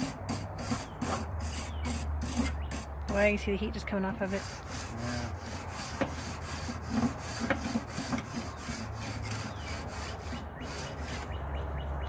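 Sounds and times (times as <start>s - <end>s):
wire brush scraping grill grate: 0.0s - 11.4s.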